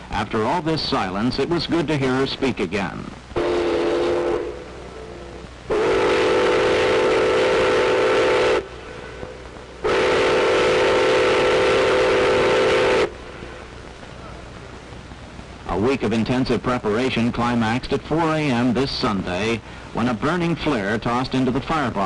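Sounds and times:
steam whistle blasts: 3.4s - 5.0s, 5.7s - 9.2s, 9.8s - 13.2s.

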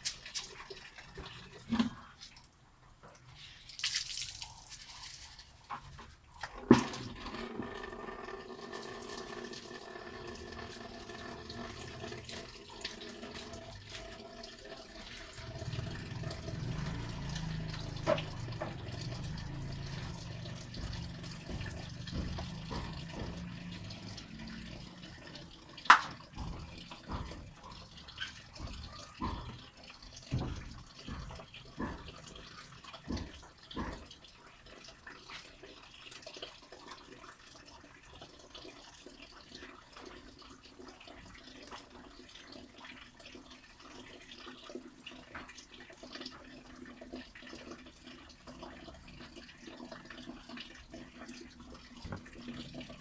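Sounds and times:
rainwater running and dripping: 0.0s - 53.0s
sharp knocks: 18.0s - 24.7s.

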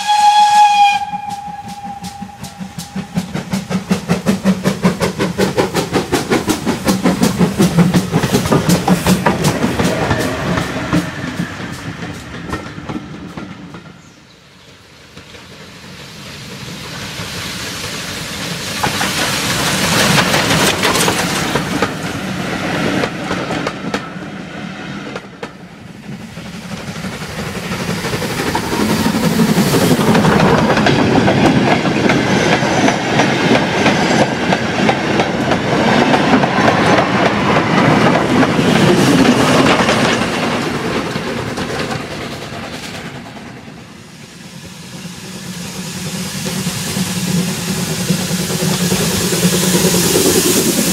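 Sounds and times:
steam hissing: 0.0s - 50.9s
steam locomotive exhaust beats: 0.0s - 50.9s.

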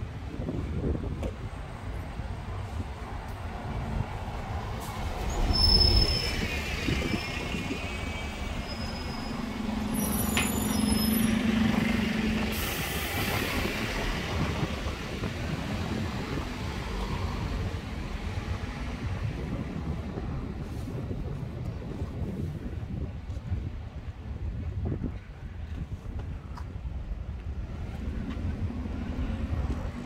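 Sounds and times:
bus rumbling past: 0.0s - 23.1s, 27.5s - 30.0s
brake squeals: 4.9s - 13.7s.

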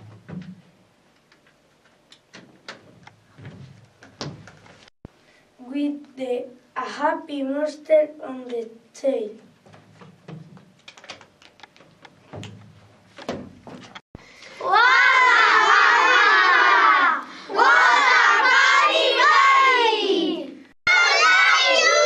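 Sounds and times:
children shouting together: 14.6s - 22.0s.

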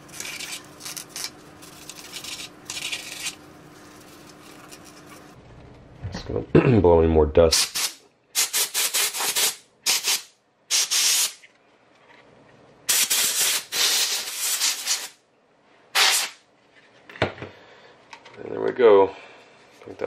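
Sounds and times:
compressed air hissing blasts: 7.6s - 11.4s, 12.9s - 15.2s, 16.0s - 16.4s.

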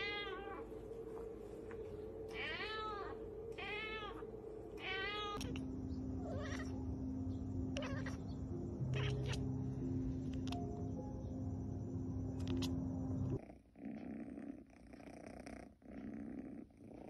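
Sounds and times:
cat meowing: 0.0s - 0.7s, 2.3s - 4.2s, 4.8s - 5.6s, 6.2s - 6.8s, 7.7s - 9.6s
steady low hum: 0.0s - 14.8s.

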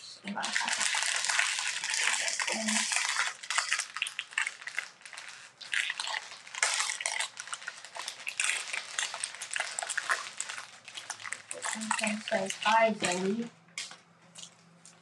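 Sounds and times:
foil wrappers crinkling and tearing: 0.2s - 13.5s.

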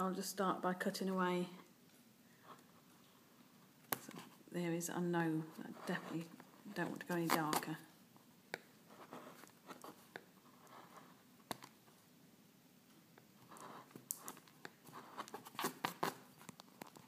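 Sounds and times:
gouge scraping lino: 5.5s - 7.8s, 13.4s - 16.9s.

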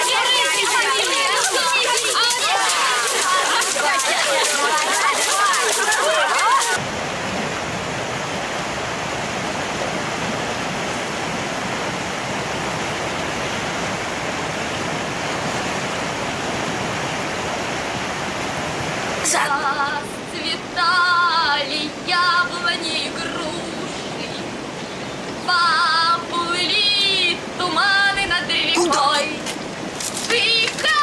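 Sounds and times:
woman singing: 0.0s - 6.8s, 19.3s - 24.5s, 25.4s - 29.5s, 30.2s - 31.0s
waterfall rushing over rocks: 0.0s - 31.0s.

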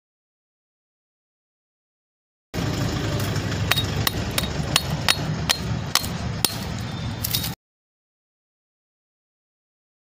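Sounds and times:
steady low rumble: 2.6s - 7.6s
sharp hammer-like taps: 3.7s - 7.4s.

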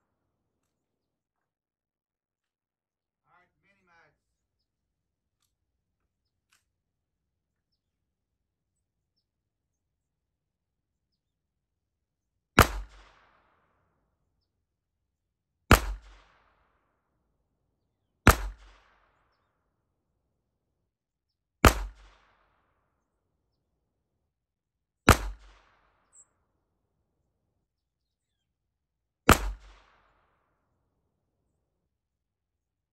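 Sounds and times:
pistol shots: 12.6s - 13.6s, 15.7s - 16.7s, 18.2s - 19.2s, 21.6s - 22.4s, 25.1s - 26.1s, 29.3s - 30.2s.

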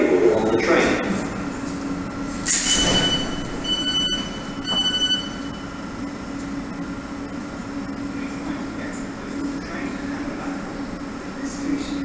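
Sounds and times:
train hum: 0.0s - 12.0s
high electronic door beeps: 2.5s - 5.7s.

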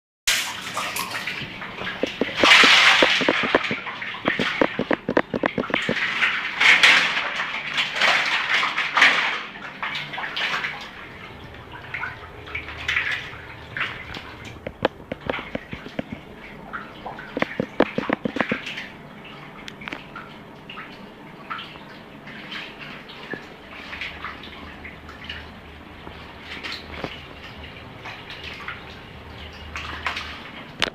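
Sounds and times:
fish flopping on wet tiles: 0.6s - 7.1s, 14.5s - 16.2s, 17.3s - 18.7s.

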